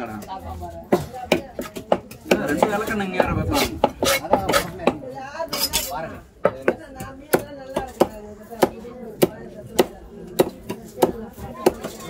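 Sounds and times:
cleaver chopping fish on wood: 0:06.4 - 0:12.0.

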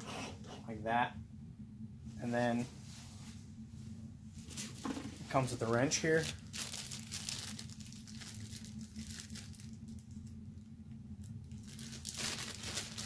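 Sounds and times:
plastic bag crinkling: 0:06.0 - 0:10.2, 0:11.4 - 0:13.0.

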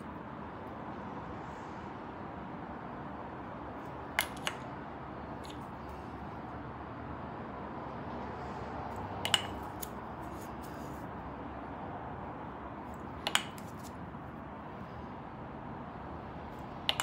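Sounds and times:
wooden ball clacking on wood: 0:04.2 - 0:04.6, 0:09.2 - 0:10.0, 0:13.2 - 0:14.0.

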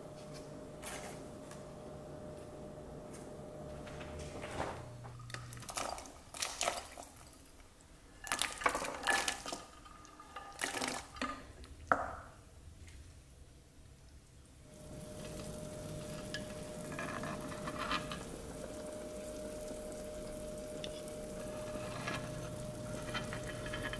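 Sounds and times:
wooden spatula stirring soup: 0:14.9 - 0:19.2.

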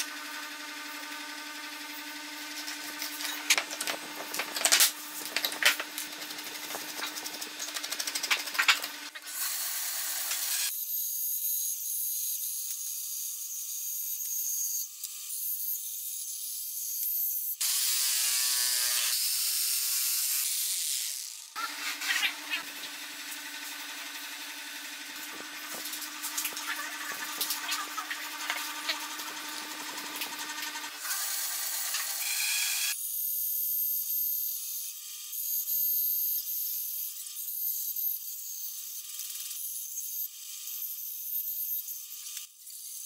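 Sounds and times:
power tool running: 0:00.0 - 0:33.0.

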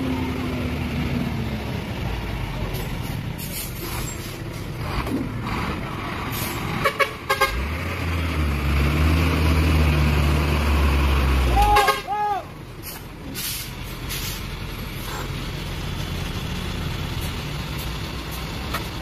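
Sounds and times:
diesel truck engines under load: 0:00.0 - 0:19.0
truck horn toots: 0:06.8 - 0:07.8, 0:11.5 - 0:12.5.

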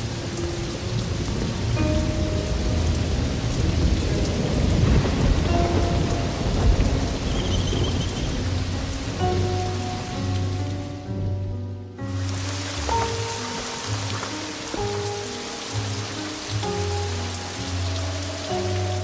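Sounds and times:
thunder rumbling: 0:00.0 - 0:11.5
heavy rain pouring: 0:00.0 - 0:19.0.

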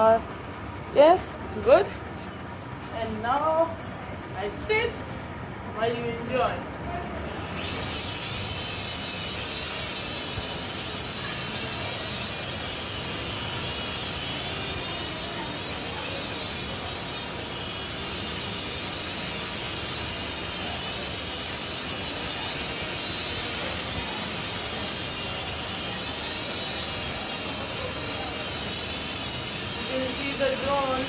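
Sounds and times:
drone propellers whining: 0:07.3 - 0:31.0.

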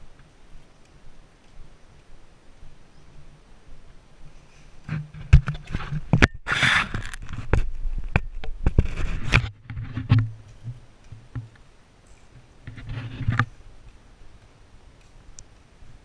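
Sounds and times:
camera handling knocks and rubbing: 0:04.9 - 0:10.3.

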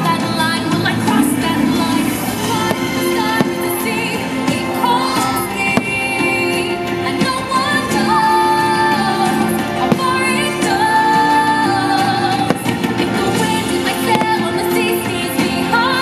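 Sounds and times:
song with singing and instruments: 0:00.0 - 0:16.0
firework bangs: 0:02.4 - 0:04.3, 0:05.6 - 0:06.4, 0:09.8 - 0:11.3, 0:12.0 - 0:14.7.

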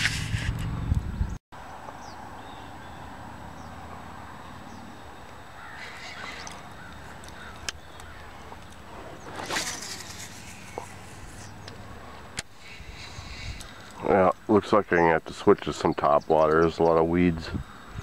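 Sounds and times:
noisy swish: 0:00.0 - 0:00.9
harsh caw-like bird calls: 0:05.4 - 0:09.2.

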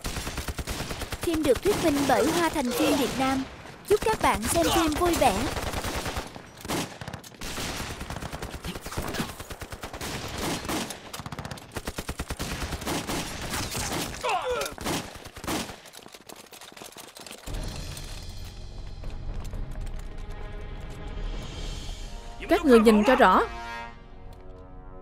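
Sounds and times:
rapid gunfire: 0:00.0 - 0:17.8.

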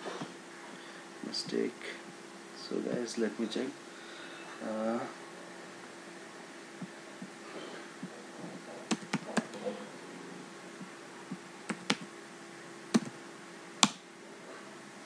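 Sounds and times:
faint steady hum: 0:00.0 - 0:15.0
keyboard keystrokes: 0:08.9 - 0:09.6, 0:11.7 - 0:12.1.

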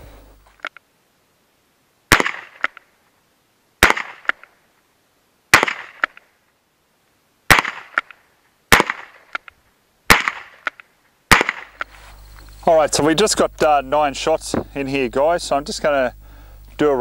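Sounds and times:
gunshots: 0:02.1 - 0:02.7, 0:03.8 - 0:04.4, 0:05.5 - 0:06.2, 0:07.5 - 0:08.1, 0:08.7 - 0:09.4, 0:10.1 - 0:10.7, 0:11.3 - 0:11.8.

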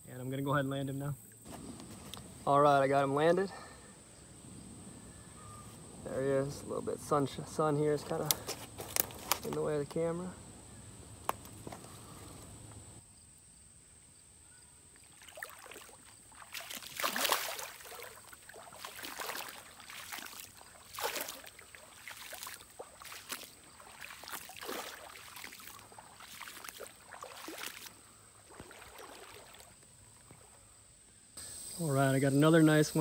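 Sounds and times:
fish splashing in shallow water: 0:14.9 - 0:30.6.

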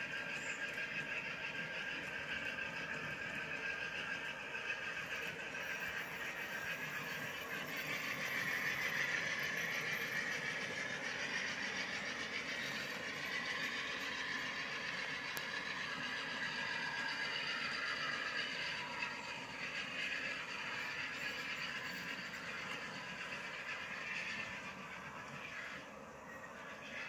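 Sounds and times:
model train wheels rolling on rails: 0:00.0 - 0:27.0.

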